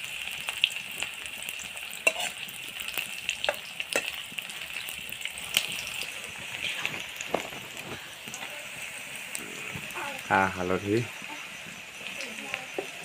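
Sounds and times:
onions sizzling in hot oil: 0.0 - 13.0
metal spoon scraping a pan: 2.0 - 2.6, 3.4 - 8.2.

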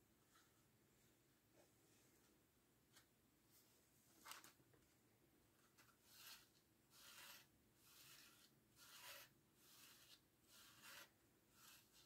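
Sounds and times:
paper rustling strokes: 5.8 - 12.0.

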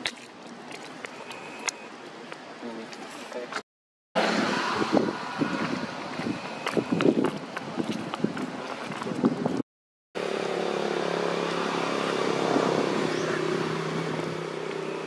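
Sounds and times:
outdoor rustling: 0.0 - 3.6
motor engine low drone: 10.2 - 15.0.

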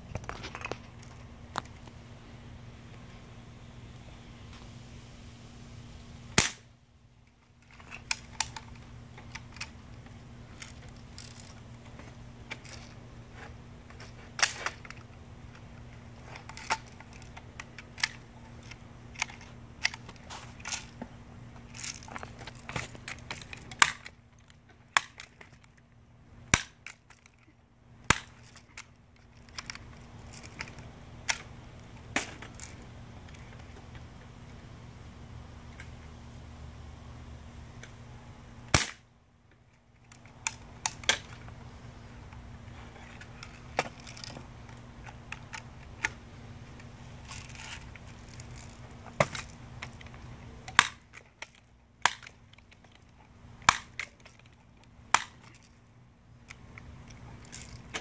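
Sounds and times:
bb gun cracks: 6.4 - 6.7, 14.4 - 14.9, 21.7 - 24.2, 26.5 - 27.1, 28.0 - 28.6, 38.7 - 39.1, 50.7 - 52.4, 53.6 - 54.3, 55.1 - 55.6.

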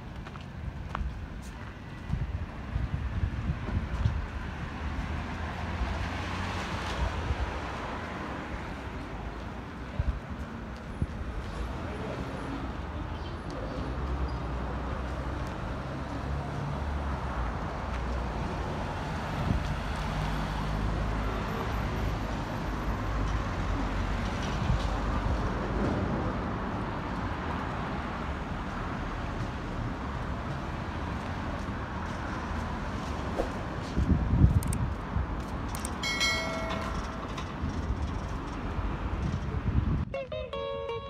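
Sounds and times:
vehicle engines passing: 0.0 - 40.8
road noise: 0.0 - 41.0.

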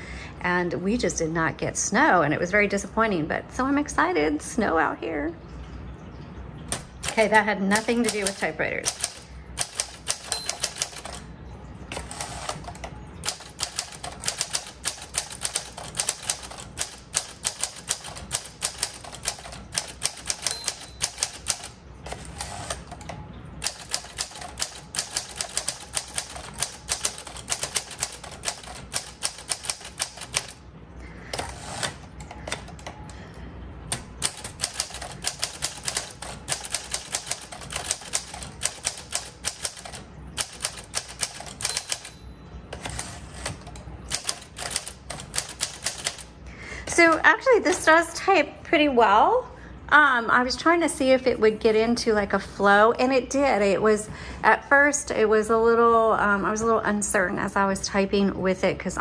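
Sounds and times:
manual typewriter keystroke clacks: 6.7 - 11.3, 11.9 - 30.6, 33.9 - 42.2, 42.8 - 46.4.

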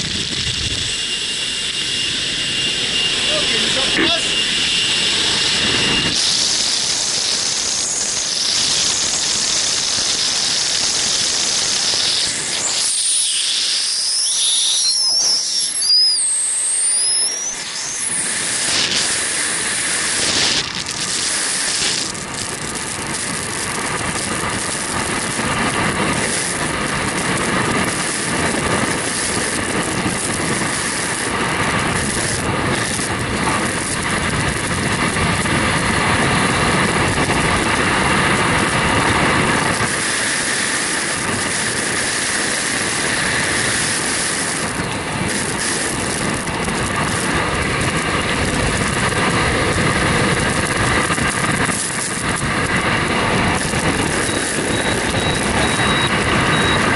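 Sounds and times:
rushing wind: 0.0 - 56.9
high whistling: 11.9 - 18.3.

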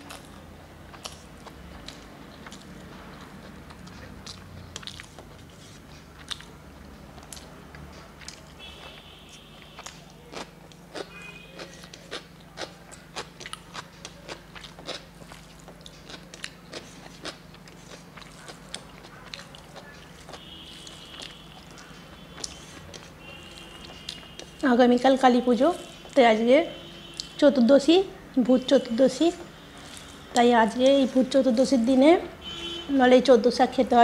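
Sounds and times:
chewing crunchy food: 0.0 - 24.7, 29.3 - 30.9
steady low hum: 0.0 - 34.0.

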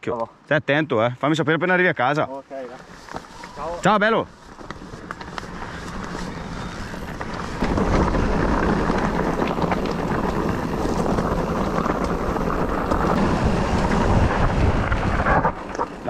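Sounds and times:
bike rolling over rough trail: 2.6 - 16.0
wind buffeting microphone: 3.2 - 16.0.

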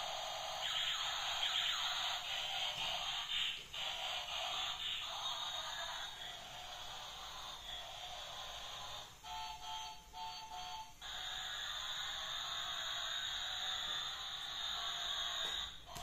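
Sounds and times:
tinny electronic toy music: 0.0 - 16.0
toy beeps: 9.2 - 11.7.

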